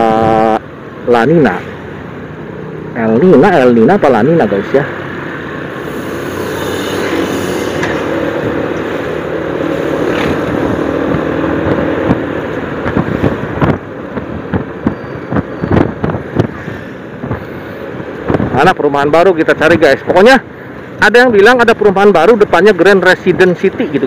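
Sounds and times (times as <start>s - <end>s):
road and wind noise: 0.0s - 24.0s
wind buffeting microphone: 7.4s - 18.8s.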